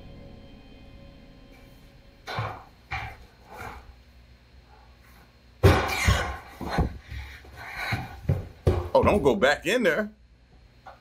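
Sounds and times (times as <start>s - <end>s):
footsteps going down stairs: 1.6s - 4.0s, 5.2s - 9.5s.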